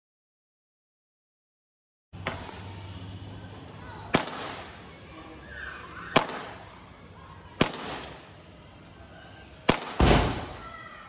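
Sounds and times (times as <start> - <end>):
firework bangs: 4.1 - 4.8, 6.1 - 6.8, 7.6 - 8.3, 9.7 - 10.7.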